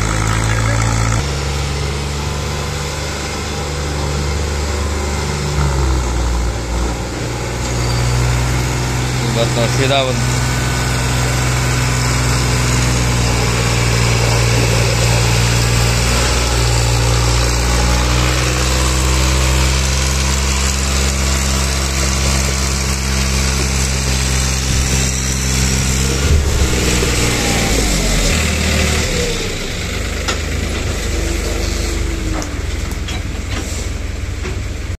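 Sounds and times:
trailers rolling by: 0.0 - 34.9
tractor diesel engine running: 0.0 - 35.0
trailer knocks: 24.5 - 29.6.

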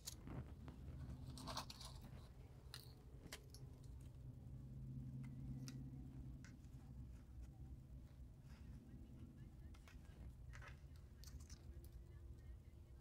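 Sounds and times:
low steady hum: 0.0 - 13.0.

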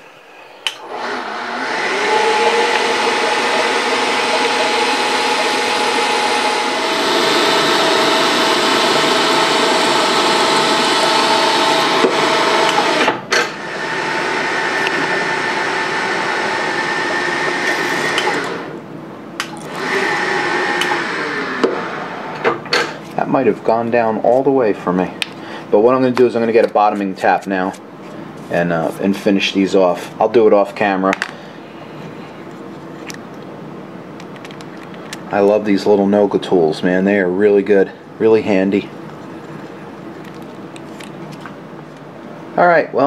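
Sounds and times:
milling spindle humming: 0.2 - 22.4
drill cutting into metal: 0.8 - 18.8, 19.7 - 22.2.

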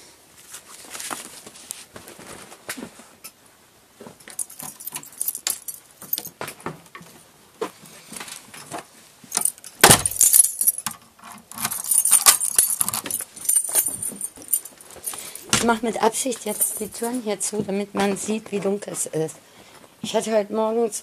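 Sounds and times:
handling clicks and knocks: 4.1 - 7.3, 8.2 - 20.2
keys jangling: 4.3 - 6.4, 9.3 - 17.2
heavy thud: 9.8 - 10.4.

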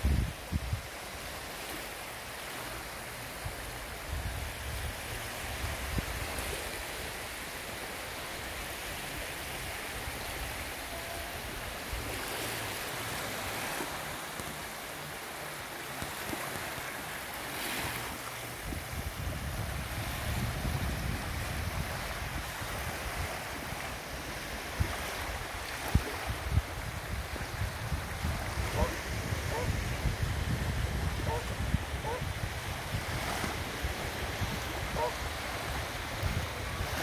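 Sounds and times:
wind buffeting microphone: 0.0 - 0.9, 18.6 - 37.0
waves breaking on sandy shore: 0.0 - 37.0.

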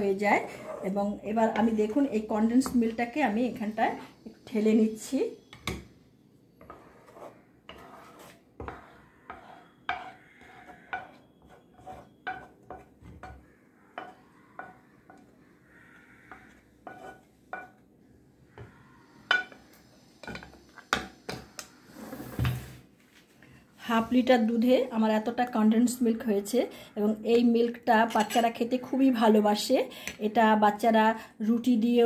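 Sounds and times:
spoon scraping a pan: 0.0 - 4.6, 6.6 - 17.8, 18.6 - 22.5, 28.0 - 28.7.

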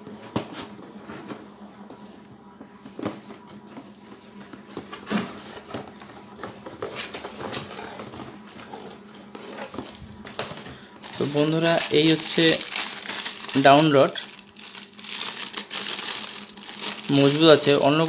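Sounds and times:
cardboard scraping and rustling: 2.8 - 13.6.

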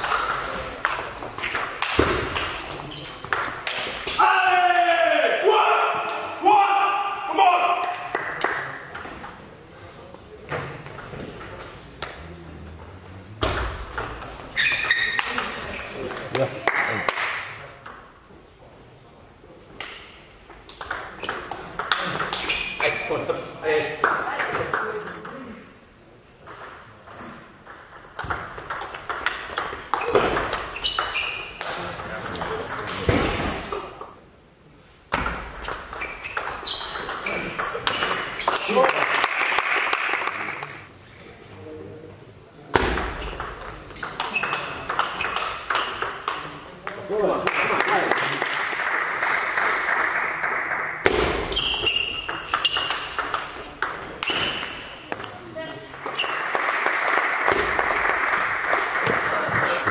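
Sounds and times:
table tennis ball hits: 0.0 - 4.2, 13.3 - 18.0, 20.7 - 23.0, 26.4 - 33.6, 35.1 - 38.9, 42.7 - 47.9, 49.9 - 55.4
high squeak: 14.6 - 15.4, 36.0 - 37.6, 51.5 - 52.9.

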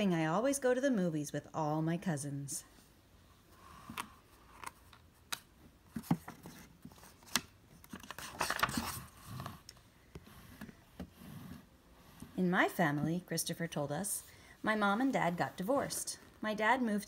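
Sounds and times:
page turning rustle: 5.9 - 9.7.

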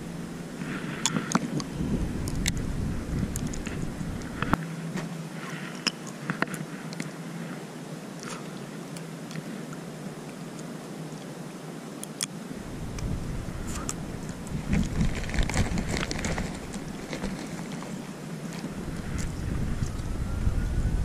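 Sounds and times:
wind rumbling on microphone: 0.0 - 5.0, 12.5 - 21.0.

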